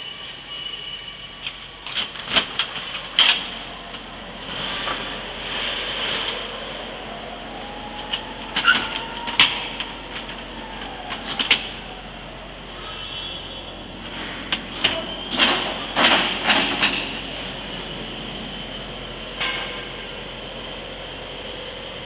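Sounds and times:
machinery hum: 0:00.0 - 0:22.0
metal clanks and knocks: 0:14.1 - 0:17.3, 0:19.4 - 0:20.1.

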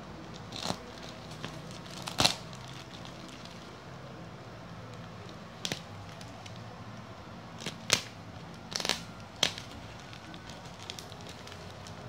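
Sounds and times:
plastic wrapping ripping: 0:00.2 - 0:03.7, 0:05.2 - 0:06.6, 0:07.6 - 0:12.0.

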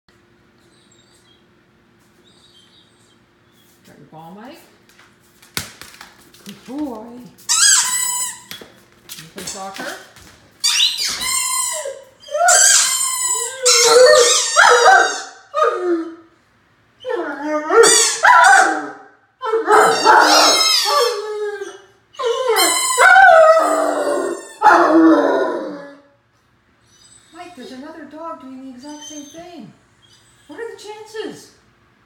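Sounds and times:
puppy howling: 0:11.5 - 0:16.3, 0:17.0 - 0:26.1.

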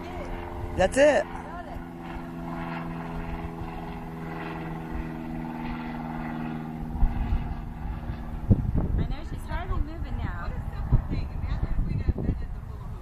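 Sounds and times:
motorboat engine humming: 0:00.0 - 0:11.3.

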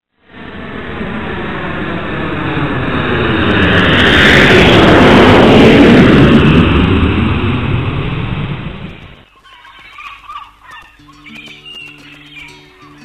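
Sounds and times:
jet plane passing over: 0:00.2 - 0:09.3.

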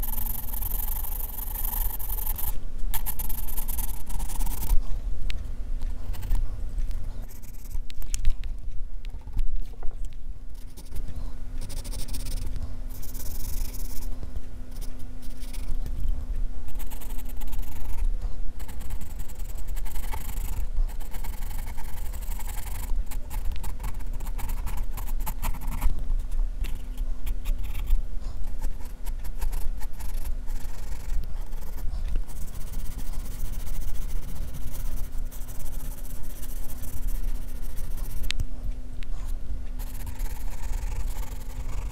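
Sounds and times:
pencil scratching on paper: 0:00.0 - 0:04.8, 0:07.2 - 0:07.8, 0:10.6 - 0:14.1, 0:14.7 - 0:16.0, 0:16.6 - 0:26.0, 0:26.7 - 0:38.3, 0:39.2 - 0:41.9
low rumble and hum: 0:00.0 - 0:41.9.

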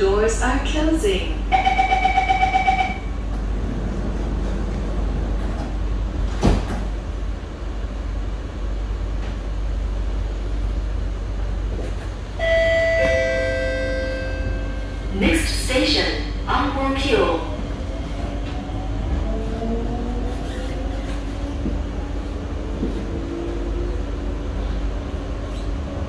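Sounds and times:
station announcement: 0:00.0 - 0:06.4, 0:07.0 - 0:20.4
train running rumble: 0:00.0 - 0:26.0
beeping door-closing chime: 0:12.4 - 0:14.9.

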